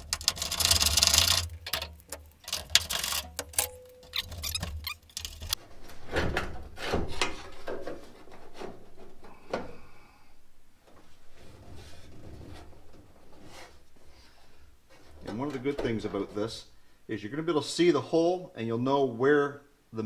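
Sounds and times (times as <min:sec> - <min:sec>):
metal bracket clinks and scrapes: 0:00.0 - 0:05.6
wrench clicking and rattling: 0:00.0 - 0:05.6.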